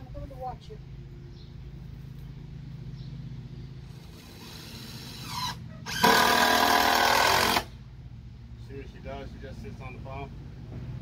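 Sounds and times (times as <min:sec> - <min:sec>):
steady low hum: 0:00.0 - 0:11.0
power drill whirring: 0:04.0 - 0:07.7.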